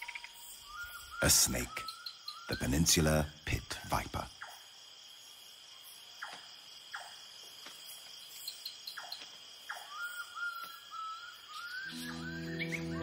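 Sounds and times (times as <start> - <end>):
crickets trilling: 0.0 - 13.0
wavering whistle-like tone: 11.6 - 13.0.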